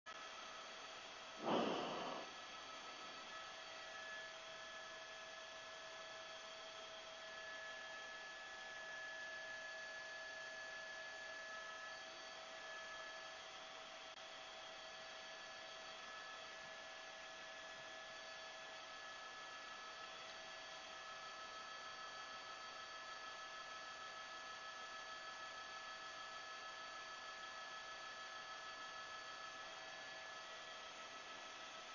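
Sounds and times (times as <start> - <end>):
electrical hiss: 1.4 - 2.3.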